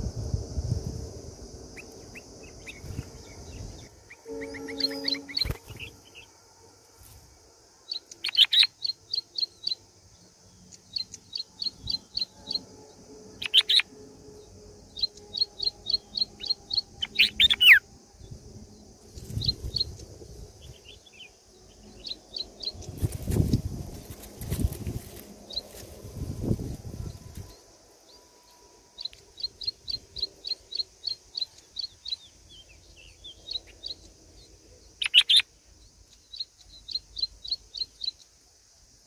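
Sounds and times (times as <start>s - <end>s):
steady high hiss: 0.0s - 39.0s
bulbuls chirping: 1.7s - 6.3s, 7.9s - 9.8s, 13.4s - 13.9s, 14.8s - 17.8s, 29.0s - 38.2s
loud sweeping bird calls: 1.8s - 6.3s, 15.0s - 17.8s.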